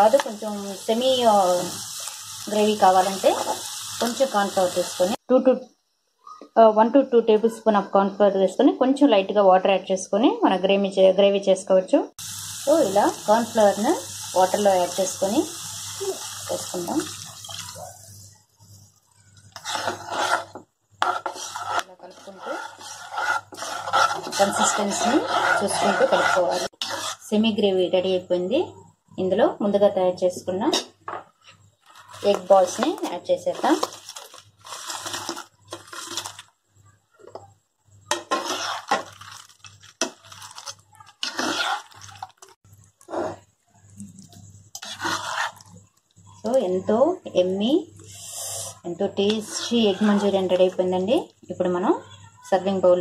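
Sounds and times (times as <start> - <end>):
spatula scraping in pan: 0.0 - 5.2, 12.3 - 27.4, 30.7 - 36.5, 38.1 - 43.5, 44.7 - 46.6, 48.1 - 50.9
spoon stirring in gravy: 19.2 - 27.2, 31.4 - 36.5, 38.1 - 43.5, 44.2 - 46.6, 48.0 - 50.8.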